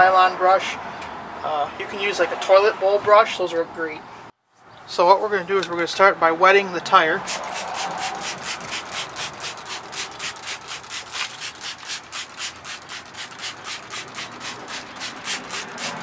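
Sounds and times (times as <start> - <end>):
spray bottle squirting: 7.3 - 16.0.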